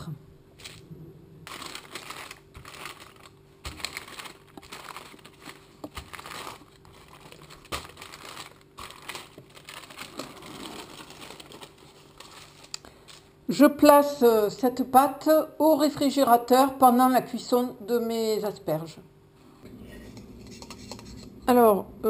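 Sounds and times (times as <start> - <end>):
parchment paper crinkling: 1.4 - 13.4.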